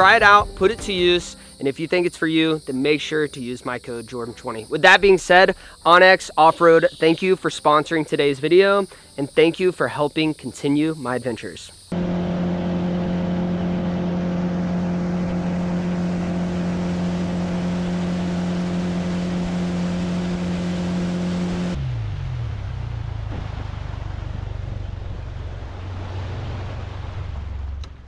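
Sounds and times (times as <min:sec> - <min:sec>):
wind: 0:00.0 - 0:28.0
outboard motor running: 0:11.9 - 0:28.0
rushing water: 0:21.8 - 0:28.0.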